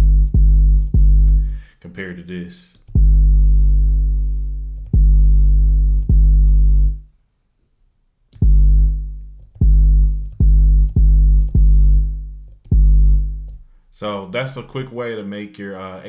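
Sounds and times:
deep bass hits: 0.0s - 1.6s, 3.0s - 7.0s, 8.4s - 13.6s.

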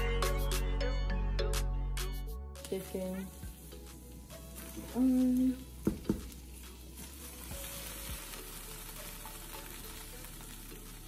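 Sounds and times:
porridge sizzling: 2.6s - 11.0s.

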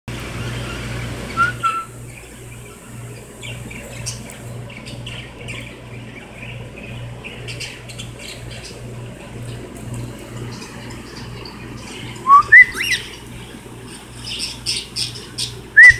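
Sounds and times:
low pulsing hum: 0.1s - 15.9s
cockatiel whistling and chirping: 1.3s - 2.0s, 12.2s - 13.2s, 15.4s - 15.9s.

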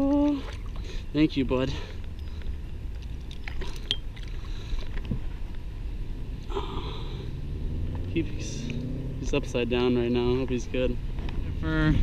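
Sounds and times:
water lapping against a kayak: 0.0s - 1.0s.

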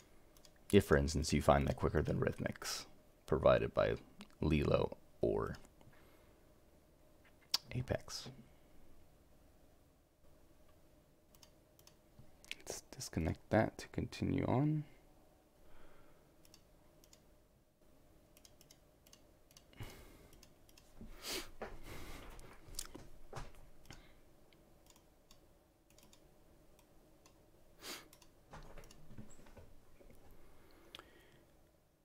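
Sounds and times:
computer mouse clicks: 0.0s - 0.6s, 11.3s - 12.6s, 16.4s - 17.3s, 18.4s - 20.9s, 24.8s - 27.4s
faint steady hum: 0.0s - 32.0s.

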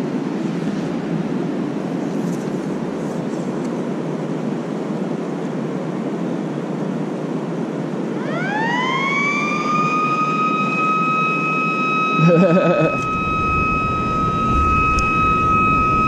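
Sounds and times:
steady rushing noise: 0.0s - 8.2s, 12.2s - 16.0s
warning siren: 8.1s - 16.0s.

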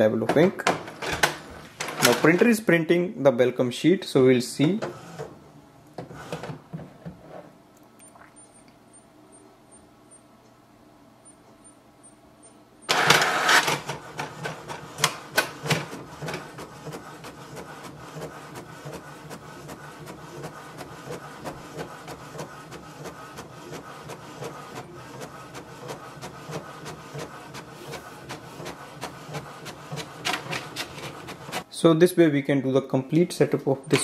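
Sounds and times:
printer clatter: 0.2s - 2.5s, 12.9s - 31.7s
printer ticking and whirring: 4.6s - 5.4s, 12.4s - 31.7s, 33.8s - 34.0s.

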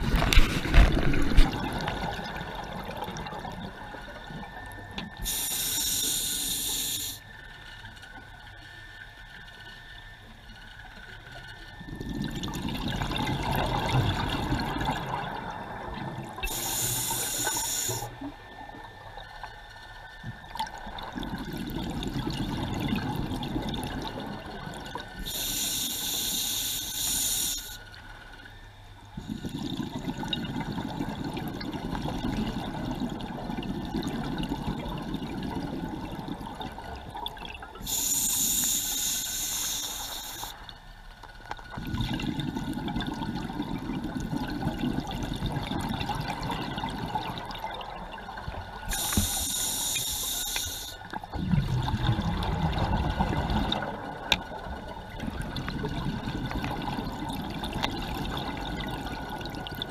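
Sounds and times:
rumbling exhaled bubbles: 0.0s - 5.4s, 11.8s - 17.0s, 20.4s - 25.5s, 29.1s - 38.5s, 41.6s - 49.9s, 51.0s - 59.9s
regulator inhalation hiss: 5.2s - 7.3s, 16.4s - 18.3s, 25.2s - 27.9s, 37.8s - 40.7s, 48.9s - 51.2s.

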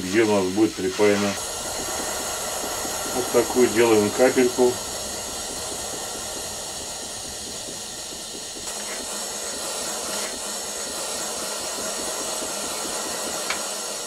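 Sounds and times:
torch flame hissing: 0.0s - 14.0s.

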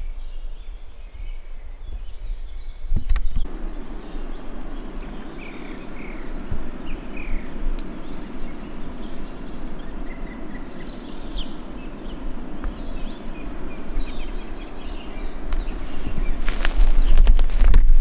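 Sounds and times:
small birds chirping: 0.0s - 17.8s
sharp crackles and knocks: 4.5s - 14.4s, 15.4s - 18.0s.

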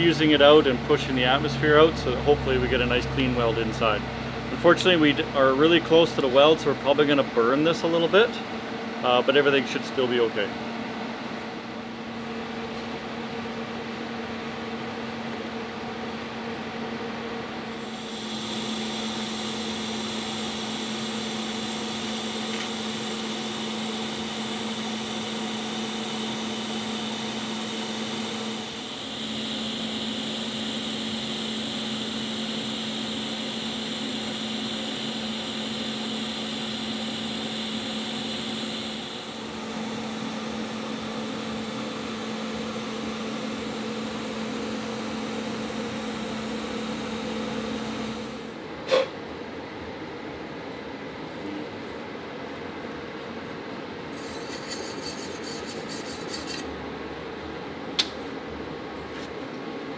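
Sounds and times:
welding arc hissing and humming: 17.6s - 48.6s, 54.2s - 56.7s.

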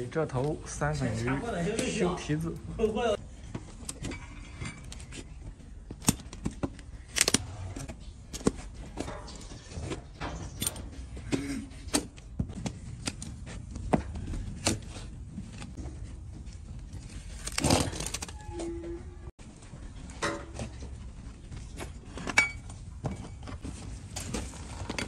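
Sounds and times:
hoof trimming clicks and cracks: 5.9s - 11.0s.

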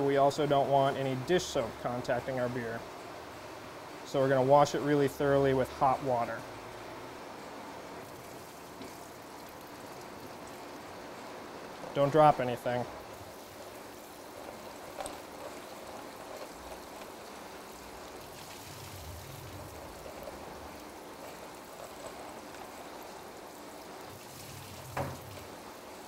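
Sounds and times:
tap water running into sink: 13.1s - 26.0s.

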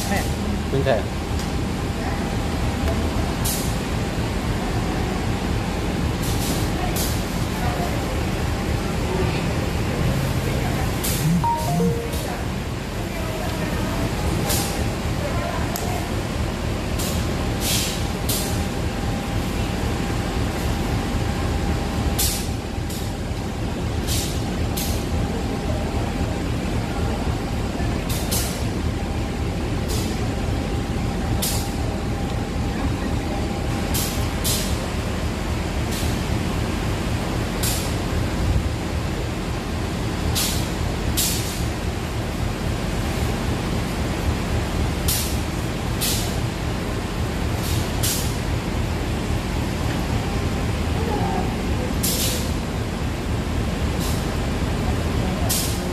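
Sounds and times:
diesel locomotive idling: 0.0s - 55.9s
faint steady tone: 11.2s - 12.6s.

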